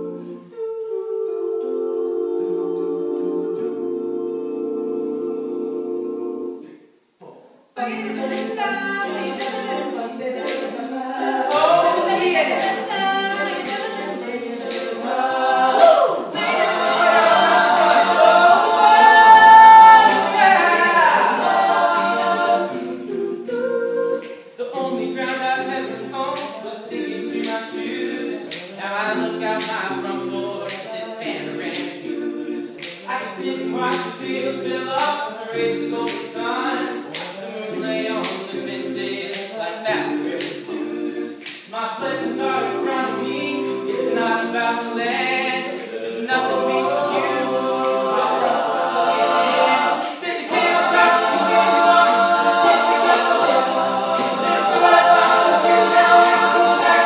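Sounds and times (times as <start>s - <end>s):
male group singing in harmony: 0.0s - 6.8s, 7.8s - 57.0s
vocal percussion clicks: 50.0s - 57.0s.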